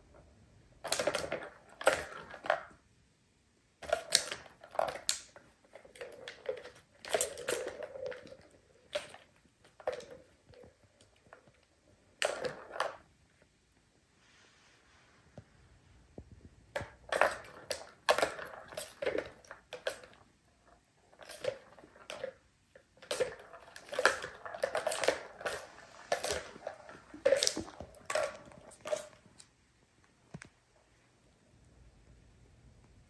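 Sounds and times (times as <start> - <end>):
plastic balls rattling in a toy: 0.8 - 2.8, 3.8 - 13.2, 16.7 - 29.5.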